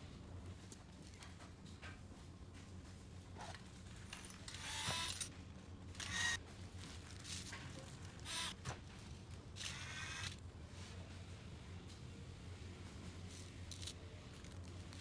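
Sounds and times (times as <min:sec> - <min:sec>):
small parts rustling and clicking: 0:06.0 - 0:10.4, 0:13.3 - 0:15.0.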